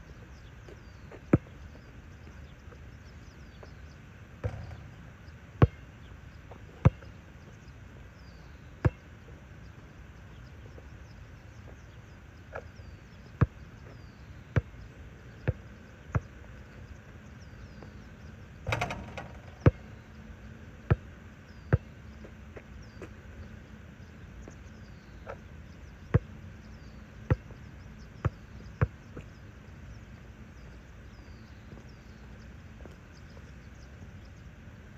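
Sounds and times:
basketball bouncing on asphalt: 0.8 - 1.8, 4.4 - 5.9, 6.5 - 7.1, 12.5 - 14.8, 15.4 - 16.6, 18.7 - 20.1, 20.9 - 23.2, 26.1 - 27.6, 28.2 - 29.3
ball hitting rim and backboard: 4.4 - 5.8, 18.7 - 19.9.

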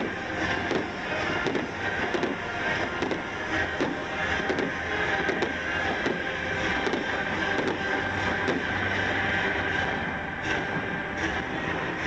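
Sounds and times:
fireworks cracks and pops: 0.0 - 7.9
fireworks rumble: 0.0 - 12.0.

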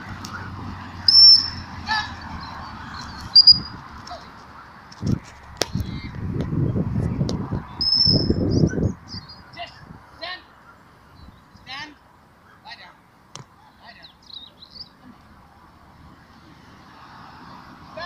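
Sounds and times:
shepherd's whistle blasts: 1.1 - 1.6, 7.8 - 8.4.

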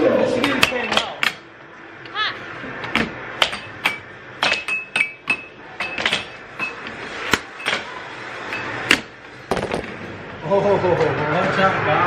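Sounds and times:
air hockey puck knocks: 2.9 - 7.9, 8.9 - 10.0.

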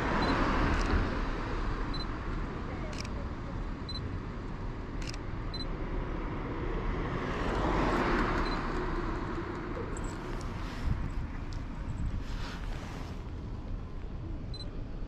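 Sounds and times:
low outdoor rumble: 8.4 - 15.0.

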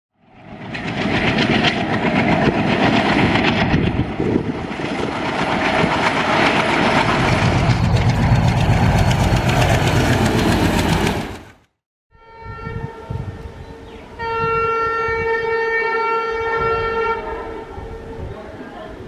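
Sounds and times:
diesel locomotive engines: 0.2 - 11.7
train wheels on rails: 0.4 - 11.7
heavy low rumble: 0.5 - 11.6.

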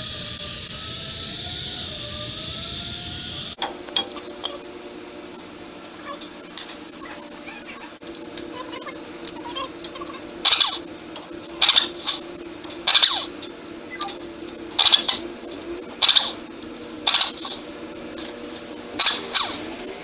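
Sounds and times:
steady low hum: 0.0 - 20.0
air wrench bursts: 10.4 - 10.8, 11.6 - 13.4, 14.8 - 15.3, 16.0 - 16.4, 17.0 - 17.6, 19.0 - 19.6.

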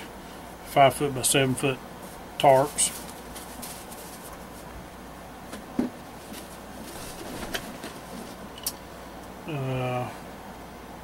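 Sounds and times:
room noise: 0.0 - 11.0
fabric bag rummaging: 2.5 - 4.6, 6.2 - 8.4.

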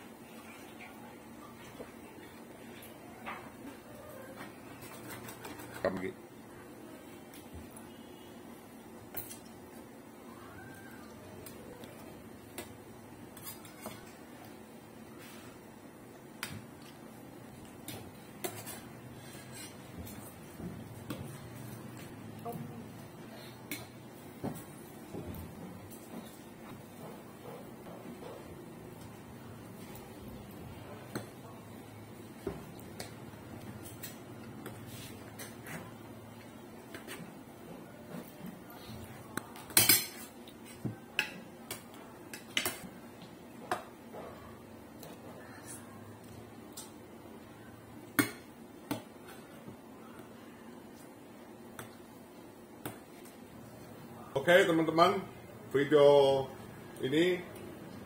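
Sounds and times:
faint room noise: 0.0 - 58.0.

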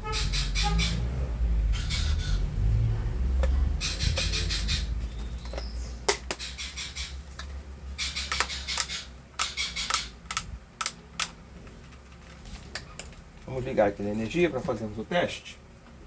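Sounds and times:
low rumble: 0.0 - 6.0.

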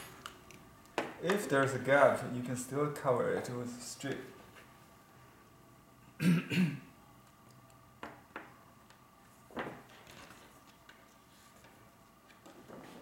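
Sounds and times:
man clearing his throat: 6.2 - 6.9.

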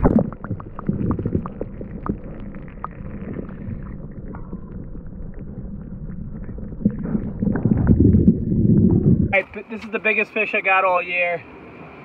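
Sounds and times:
underwater water washing: 0.0 - 9.4.

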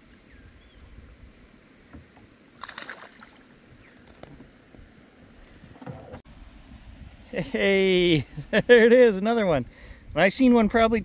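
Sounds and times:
water splashing against kayak: 1.8 - 6.2
fish splashing: 2.5 - 4.2.

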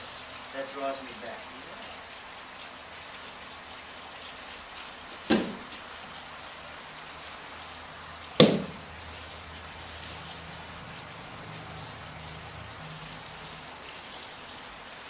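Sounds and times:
steady hiss: 0.0 - 15.0
body slapping a mat: 5.3 - 5.8, 8.4 - 8.8.

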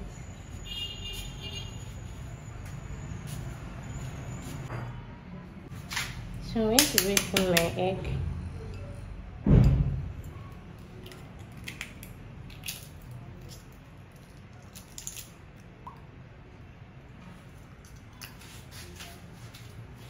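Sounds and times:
eggshell clicking and crackling: 6.8 - 7.7, 10.9 - 15.7.

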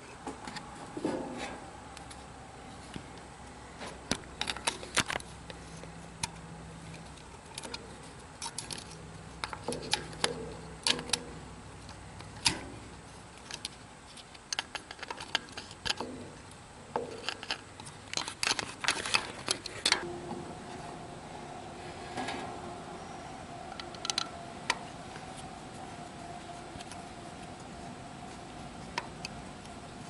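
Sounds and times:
screwdriver clicking and scraping metal: 5.8 - 11.3, 13.3 - 16.1, 17.0 - 20.0.

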